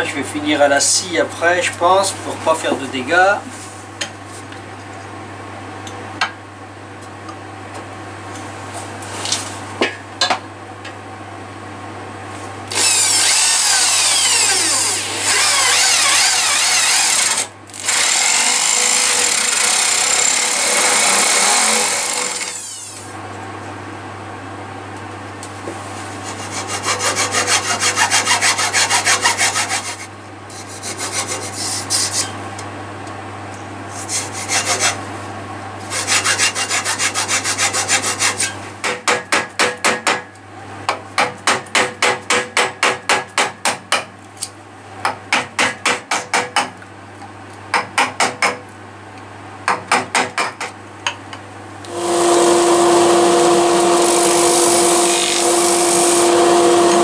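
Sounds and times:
hacksaw cutting wood: 12.7s - 23.0s, 26.2s - 32.2s, 34.1s - 35.0s, 35.9s - 38.5s, 51.9s - 57.0s
rotary tool whining: 12.7s - 23.1s, 51.9s - 57.0s.

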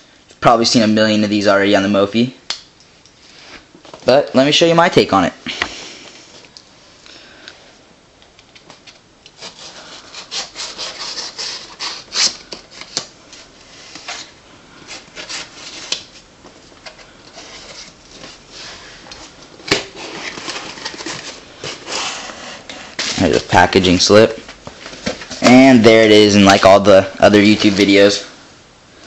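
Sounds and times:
knife scraping and slicing cardboard: 9.4s - 12.4s.

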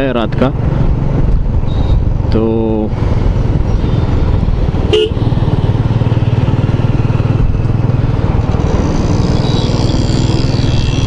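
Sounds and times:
motorcycle engine running: 3.0s - 11.0s.

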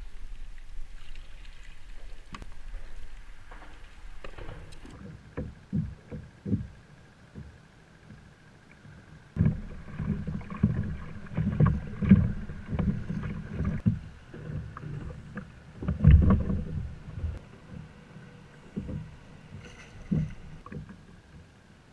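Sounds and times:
water slapping against a kayak hull: 9.4s - 18.0s.

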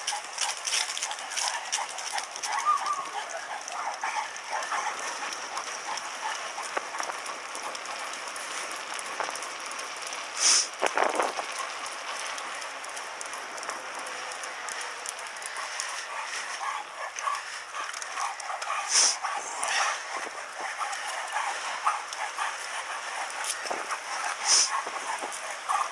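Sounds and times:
bicycle rattling over cobblestones: 0.0s - 25.9s
dog paws clicking: 0.0s - 25.9s
short loud hiss: 10.4s - 10.7s.

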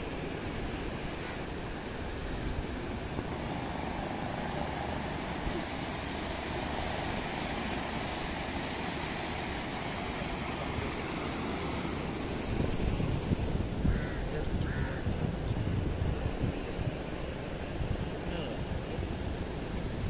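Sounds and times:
wind noise: 10.0s - 20.0s.

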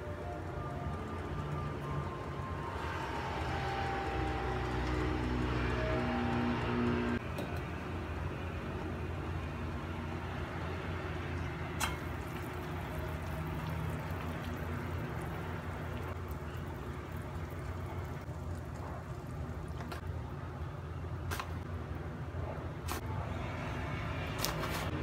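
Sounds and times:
water simmering in a pot: 11.4s - 20.1s.

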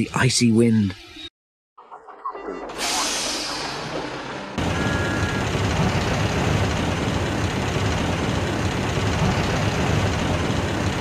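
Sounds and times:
diesel locomotive engine rumbling: 2.5s - 11.0s.

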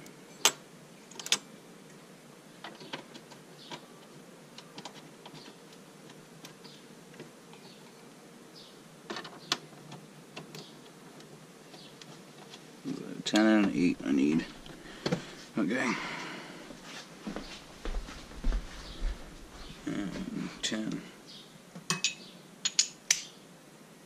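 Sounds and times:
faint steady hiss: 0.0s - 24.0s
tools clicking and clinking: 21.9s - 23.3s.

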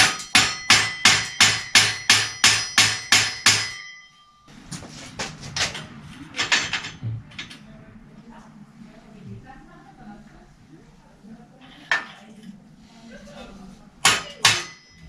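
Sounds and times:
hammer striking steel: 0.0s - 4.5s, 14.0s - 15.0s.

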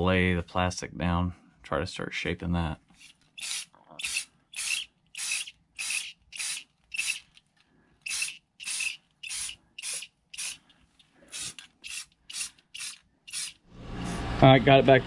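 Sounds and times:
spray paint can hissing: 3.4s - 7.3s, 8.1s - 10.6s, 11.3s - 14.3s.

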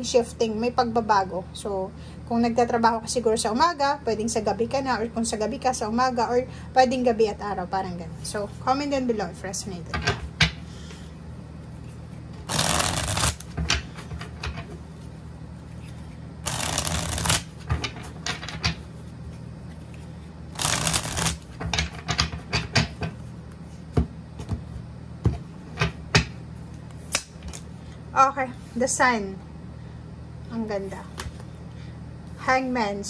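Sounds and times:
cards being shuffled: 11.8s - 13.6s, 15.8s - 17.6s, 19.7s - 21.6s.

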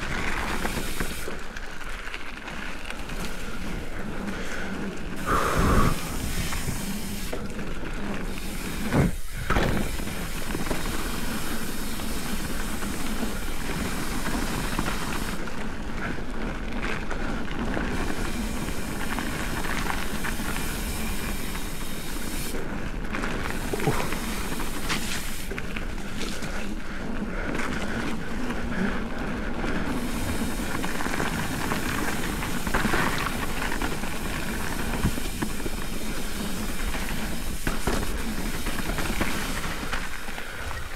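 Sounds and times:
bike tyres rolling on gravel: 0.0s - 40.9s.

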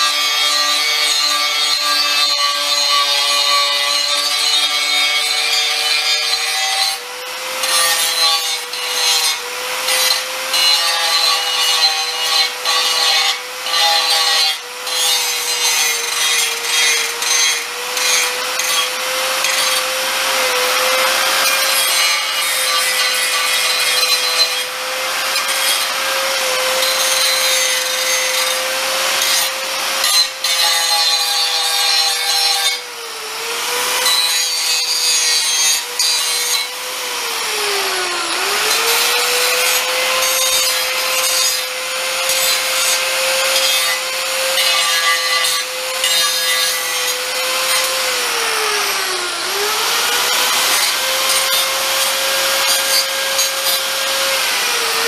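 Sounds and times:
harsh grinding rasp on metal: 0.0s - 55.0s
electric grinder motor whine: 36.6s - 55.0s.

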